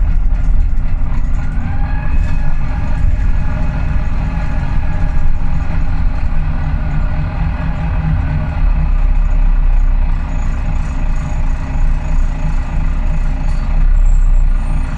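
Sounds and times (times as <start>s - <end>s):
bus diesel engine drone: 0.0s - 14.9s.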